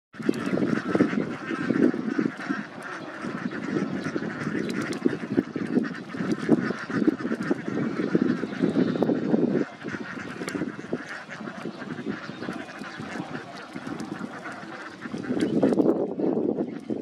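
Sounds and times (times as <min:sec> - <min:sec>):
ducks quacking: 0:00.2 - 0:17.0.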